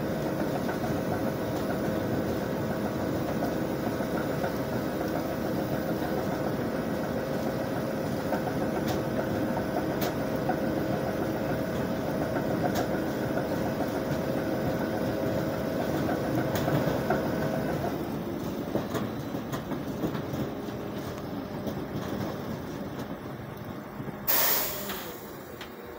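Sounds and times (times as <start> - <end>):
machine drone and rattle: 0.0 - 25.9.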